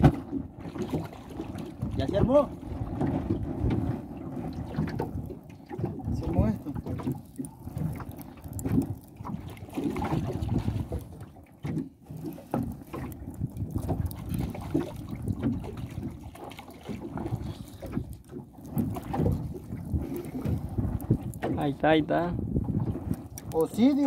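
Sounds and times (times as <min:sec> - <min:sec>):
water slapping boat hull: 0:00.0 - 0:24.0
wind buffeting microphone: 0:00.0 - 0:24.0.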